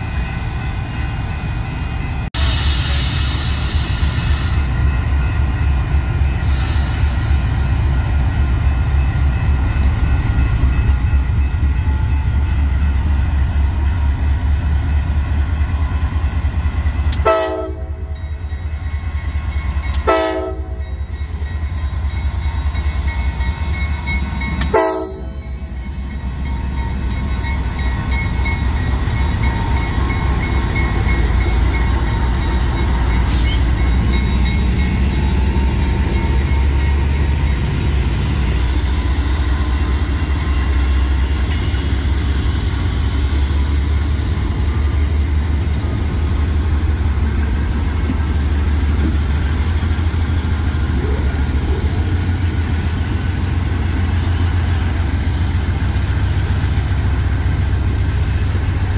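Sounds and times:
diesel locomotive rumbling: 0:00.0 - 0:58.9
locomotive horn blasts: 0:17.2 - 0:18.2, 0:20.0 - 0:21.0, 0:24.6 - 0:25.4.

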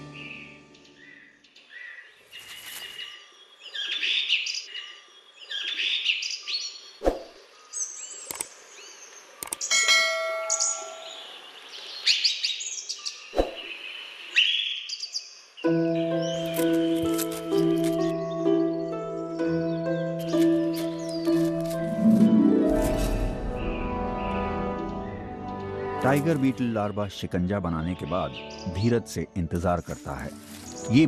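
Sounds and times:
bird chirps and trills: 0:00.0 - 0:25.8
sharp clicks: 0:08.2 - 0:08.6, 0:09.4 - 0:09.7.

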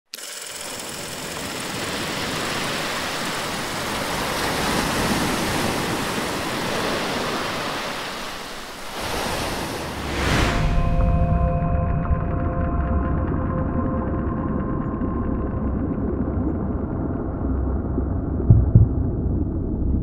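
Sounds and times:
ocean surf washing onto beach: 0:00.8 - 0:10.9
brief whoosh: 0:09.8 - 0:11.6
music with held tones: 0:10.7 - 0:16.2.

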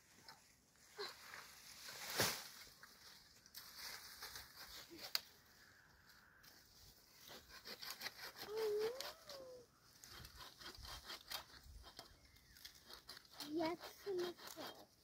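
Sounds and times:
rustling: 0:01.0 - 0:05.3.

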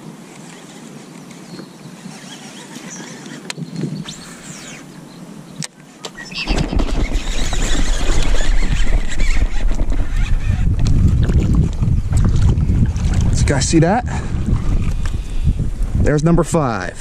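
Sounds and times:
rod and reel handling: 0:00.3 - 0:05.0, 0:05.6 - 0:12.3
fishing reel spool whirring: 0:00.3 - 0:05.1, 0:06.2 - 0:11.2.

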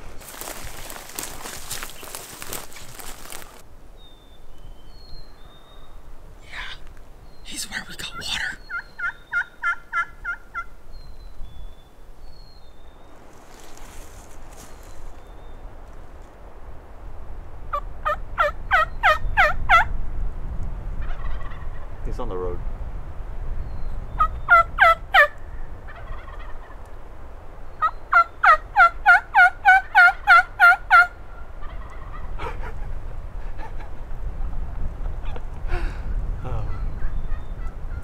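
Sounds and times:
turkey yelping: 0:08.1 - 0:10.7, 0:24.2 - 0:26.8, 0:27.8 - 0:32.8.

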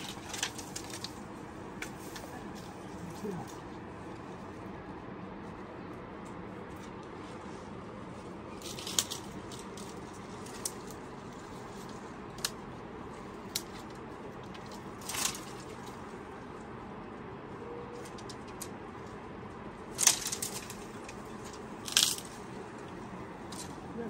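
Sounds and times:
sticks snapping: 0:00.0 - 0:01.2, 0:08.6 - 0:11.0, 0:11.8 - 0:12.6, 0:13.4 - 0:16.0, 0:19.9 - 0:22.4
crunching rustle: 0:00.0 - 0:24.0.

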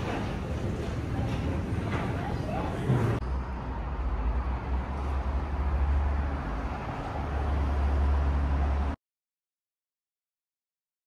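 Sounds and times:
vehicle rumble in motion: 0:02.8 - 0:09.0.

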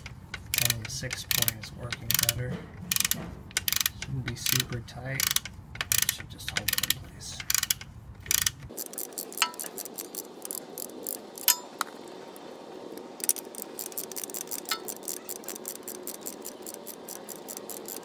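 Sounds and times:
hand ratchet clicking: 0:00.0 - 0:11.6, 0:13.2 - 0:18.0.

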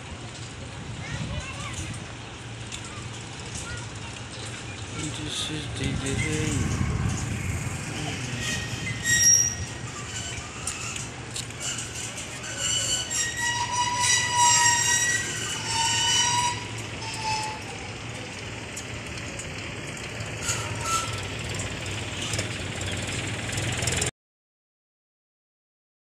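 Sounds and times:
metal frame squealing and creaking: 0:05.0 - 0:19.0, 0:20.1 - 0:24.1.

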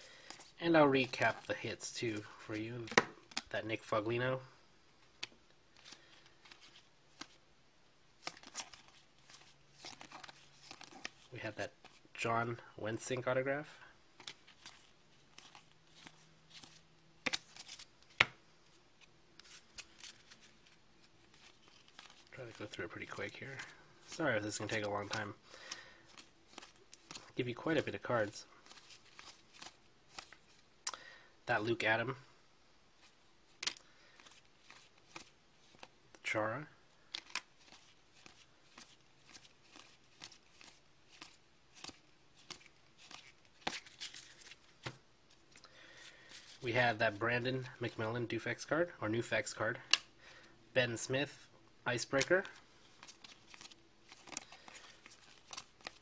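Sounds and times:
cards rustling and flicking: 0:00.1 - 0:04.0, 0:05.0 - 0:07.4, 0:08.2 - 0:13.4, 0:14.1 - 0:30.6, 0:33.0 - 0:36.2, 0:37.0 - 0:48.0, 0:51.9 - 0:56.0
cards flicking and sliding: 0:08.2 - 0:11.2, 0:14.2 - 0:18.4, 0:53.0 - 0:56.0.

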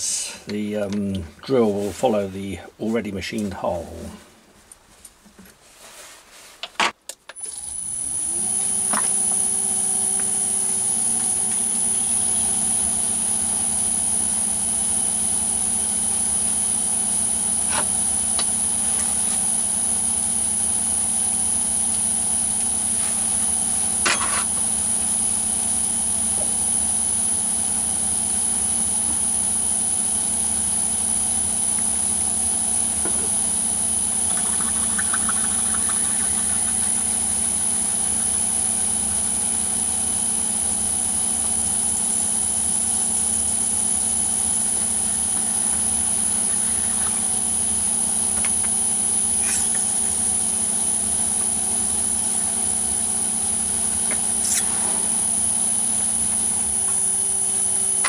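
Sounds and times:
high-pitched drilling whine: 0:07.4 - 0:58.0
lathe machine hum: 0:30.4 - 0:54.0.

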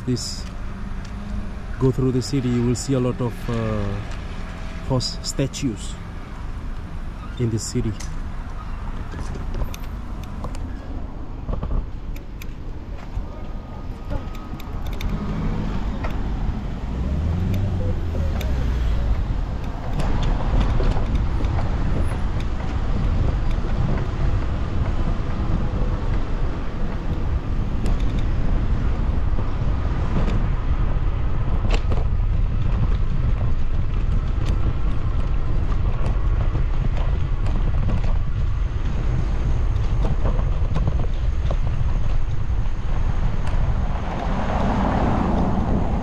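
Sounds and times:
wind rushing over microphone: 0:00.0 - 0:46.0
bicycle tyres rumbling on cobbles: 0:09.0 - 0:46.0
sharp clicks and rattles: 0:14.0 - 0:16.4, 0:17.3 - 0:25.3.

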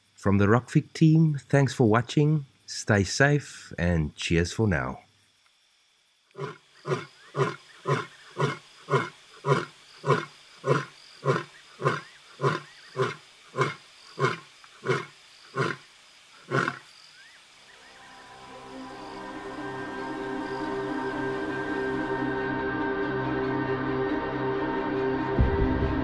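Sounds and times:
lion roaring: 0:06.4 - 0:15.8, 0:16.4 - 0:16.8.

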